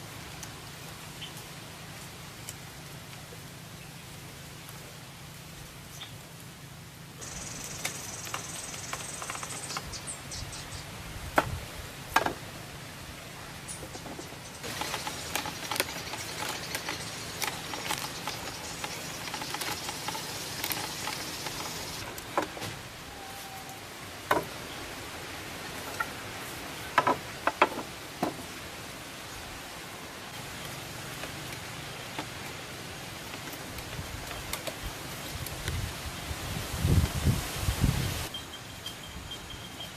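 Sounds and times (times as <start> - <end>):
high steady hiss: 0.0 - 39.9
bamboo poles knocking: 11.4 - 12.4, 26.9 - 28.4.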